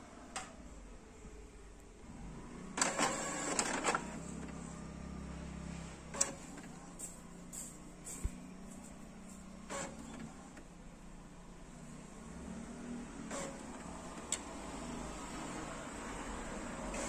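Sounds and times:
printer motor hum: 0.0 - 17.0
printer mechanical rattling and clicking: 2.7 - 4.7, 6.0 - 10.8, 13.0 - 17.0.

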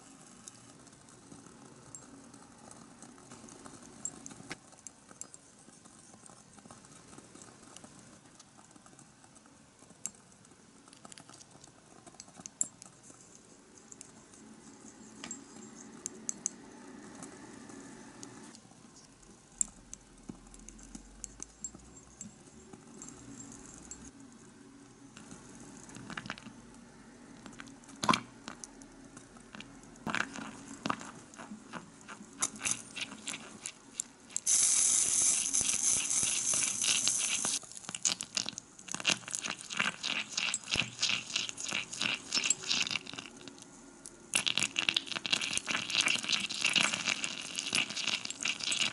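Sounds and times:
steady hiss: 32.4 - 37.6.

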